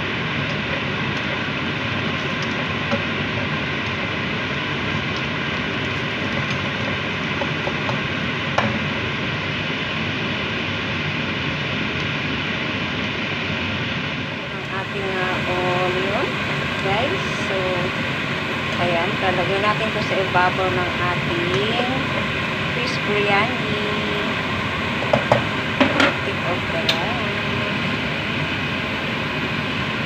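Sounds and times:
onions sizzling in hot oil: 0:00.0 - 0:12.8.

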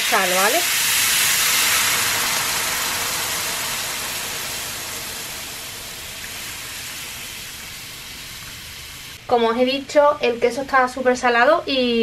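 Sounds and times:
frying pan sizzling: 0:00.0 - 0:09.2
sauce pouring into pan: 0:00.5 - 0:09.2.

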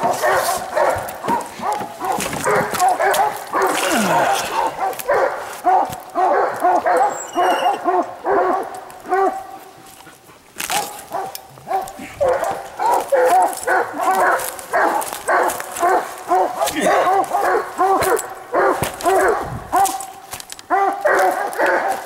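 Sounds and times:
dogs barking: 0:00.0 - 0:22.0.

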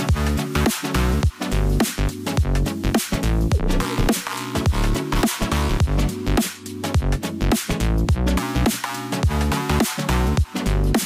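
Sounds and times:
electronic dance music: 0:03.0 - 0:07.8.

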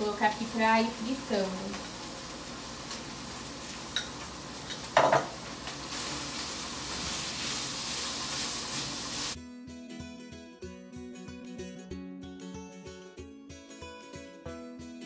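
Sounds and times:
chicken sizzling in frying pan: 0:00.0 - 0:09.4.

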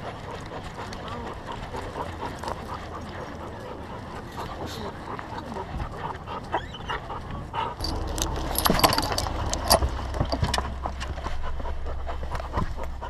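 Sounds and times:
small metal jingles: 0:07.8 - 0:11.0
low steady hum: 0:07.8 - 0:13.0.

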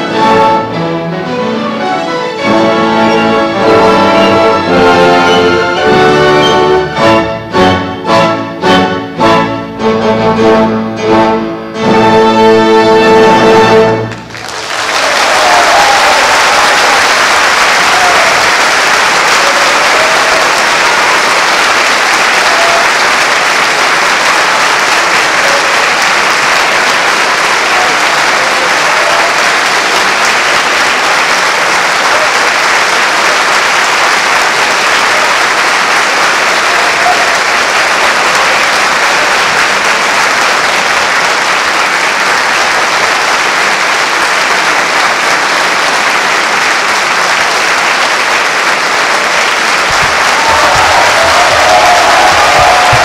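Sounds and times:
audience applauding: 0:13.7 - 0:53.0.

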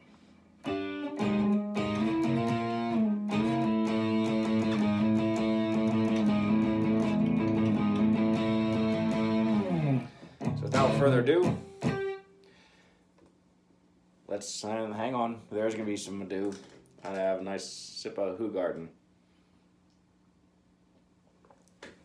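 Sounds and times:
electric guitar notes and chords: 0:00.6 - 0:12.3.

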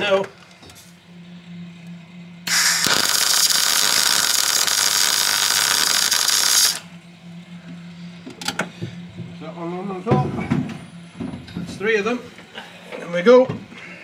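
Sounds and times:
welder crackling hiss: 0:02.5 - 0:06.9.

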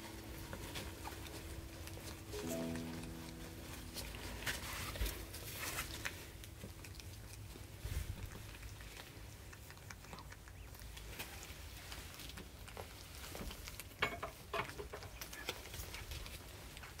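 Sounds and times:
cat licking kittens: 0:00.0 - 0:17.0.

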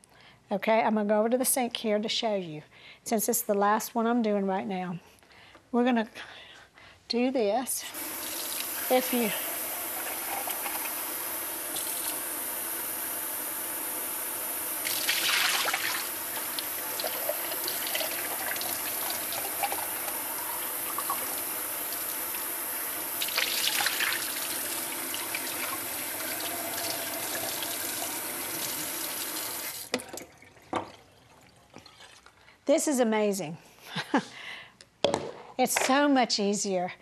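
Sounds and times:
faucet running water: 0:07.9 - 0:32.4
water splashing: 0:08.0 - 0:32.3.

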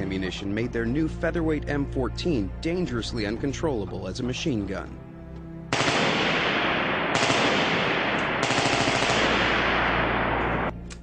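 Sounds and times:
automatic rifle fire: 0:05.7 - 0:10.7.

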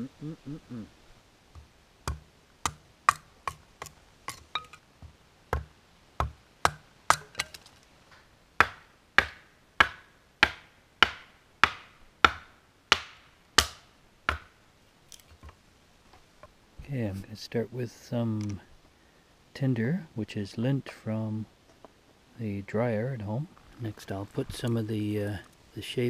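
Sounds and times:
hatchet splitting kindling: 0:05.6 - 0:07.8.

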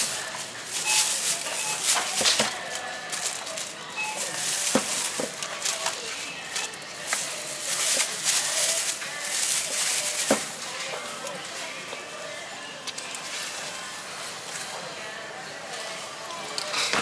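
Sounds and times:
plastic bag rustling: 0:00.0 - 0:12.4.

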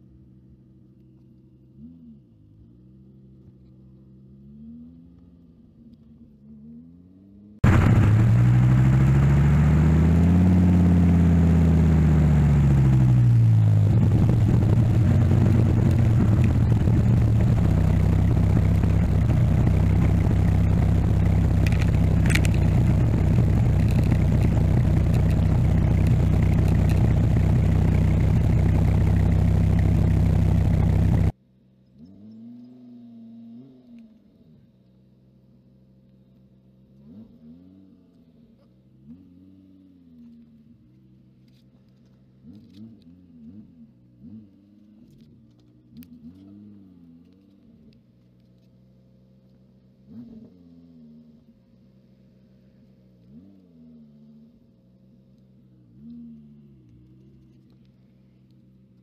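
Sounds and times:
car engine accelerating: 0:01.3 - 0:59.0.

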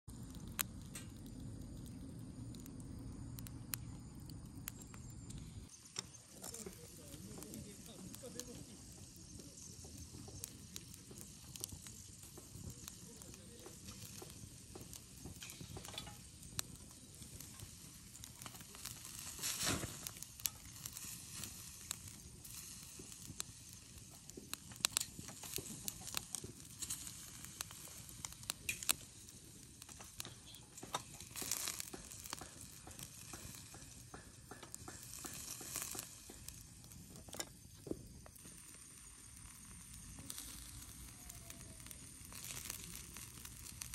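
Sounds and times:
chicken sizzling on a grill: 0:00.0 - 0:43.9
sharp pops and crackles: 0:00.0 - 0:43.9.

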